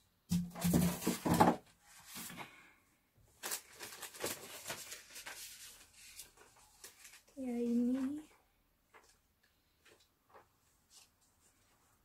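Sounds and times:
styrofoam box scraping and crackling: 0.3s - 2.4s.

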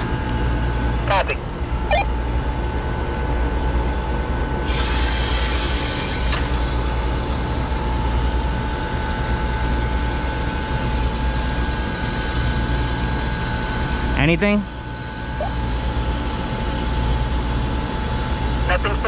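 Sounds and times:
machinery rumble and hum: 0.0s - 19.0s.

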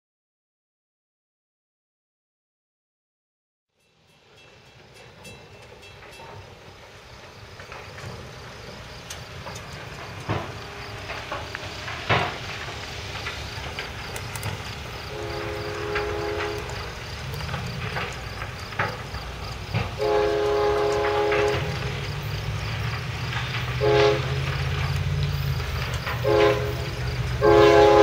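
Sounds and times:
freight train rumble: 3.8s - 28.0s
outdoor background noise: 3.8s - 28.0s
locomotive air horn chord: 15.0s - 16.9s, 20.0s - 22.0s, 23.8s - 24.8s, 26.2s - 28.0s.

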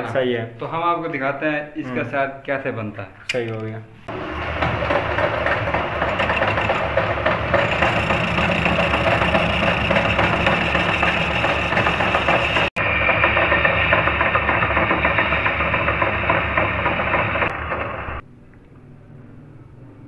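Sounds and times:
lathe machine hum: 4.1s - 18.2s
lathe tool cutting metal: 4.1s - 18.2s.

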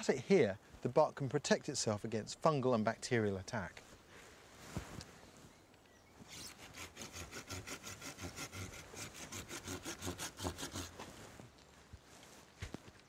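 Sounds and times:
hand saw cutting wood: 6.3s - 11.1s.

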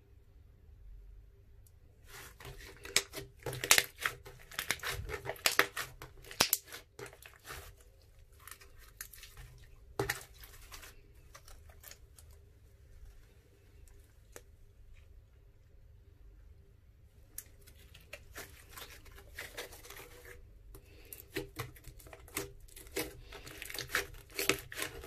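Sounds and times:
hands squishing slime: 2.0s - 14.5s, 17.3s - 25.0s
wet crackling pops: 2.8s - 7.2s.

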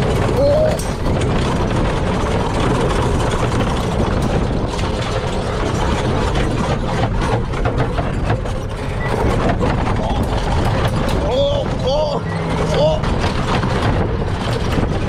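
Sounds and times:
gravel crackles: 0.0s - 15.0s
wind on microphone: 0.0s - 15.0s.

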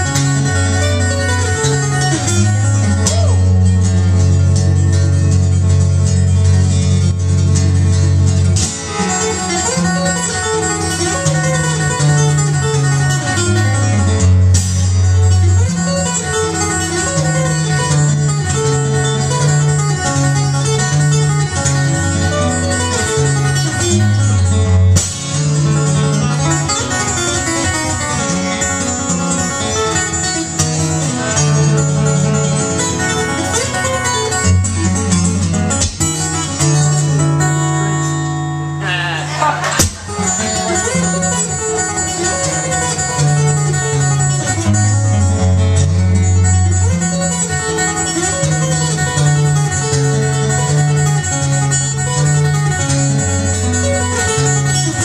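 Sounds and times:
fingerstyle acoustic guitar: 0.0s - 55.0s
sharp percussive hit: 39.4s - 40.9s.

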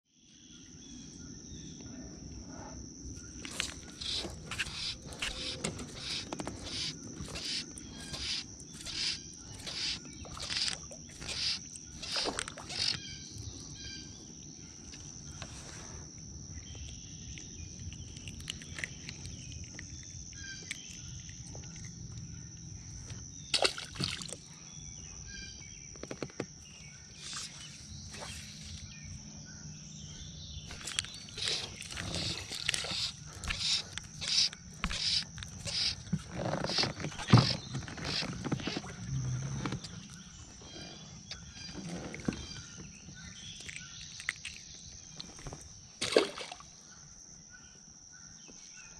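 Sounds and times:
high-pitched insect buzz: 3.2s - 14.2s, 26.6s - 44.4s
fly line scraping rustles: 3.4s - 13.1s, 30.7s - 42.9s.

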